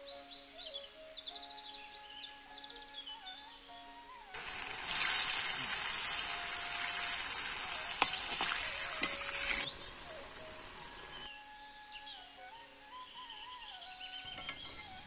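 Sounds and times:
deep-frying sizzle: 0:04.4 - 0:11.3
metal ladle clicking on pan: 0:07.8 - 0:09.7, 0:14.3 - 0:15.0.

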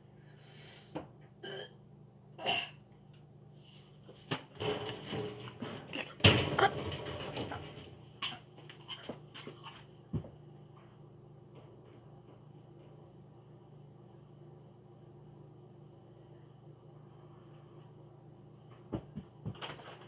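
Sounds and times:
faint steady hum: 0:00.0 - 0:20.0
knocks bumps and rustling: 0:04.2 - 0:08.2, 0:18.9 - 0:20.0.

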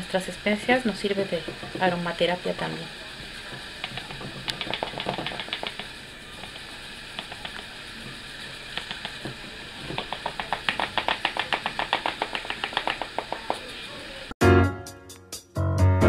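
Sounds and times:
plastic sieve tapping on funnel: 0:03.8 - 0:06.6, 0:08.8 - 0:13.6
music: 0:14.4 - 0:16.0.

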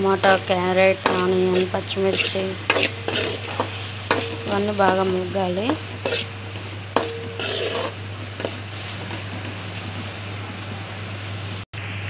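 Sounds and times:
vegetables sizzling in oil: 0:00.0 - 0:10.4
low steady hum: 0:00.0 - 0:12.0
spatula scraping pan: 0:00.2 - 0:09.5.

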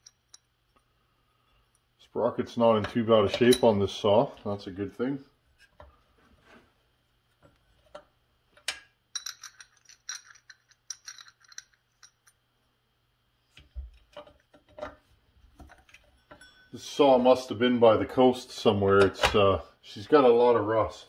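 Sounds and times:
light metallic clinks and ticks: 0:15.9 - 0:16.8.

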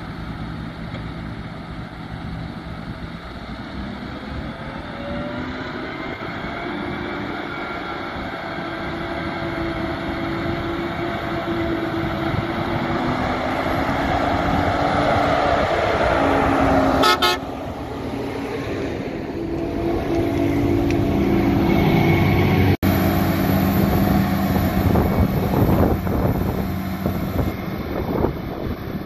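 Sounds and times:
tractor diesel engine: 0:00.0 - 0:29.0
horn toot: 0:16.9 - 0:17.5.

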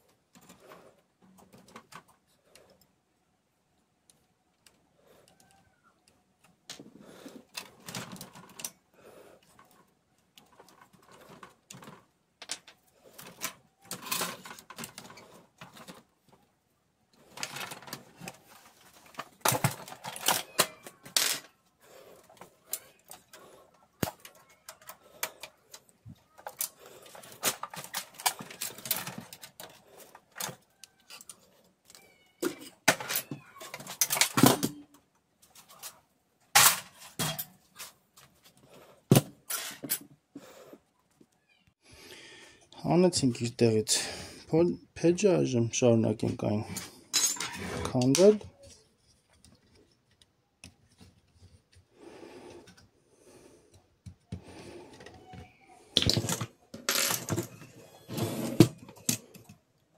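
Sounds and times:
printer parts clicking and scraping: 0:22.2 - 0:34.7.

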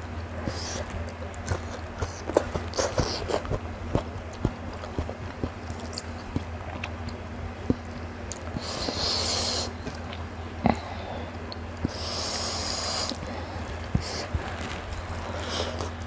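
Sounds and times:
chewing clicks: 0:00.8 - 0:10.8
breathy sniffs: 0:08.6 - 0:09.8, 0:11.9 - 0:14.4.

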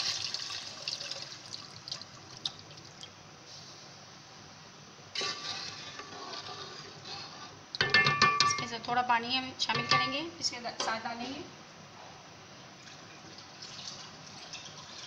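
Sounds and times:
spatula stirring with sloshing: 0:05.1 - 0:08.5.

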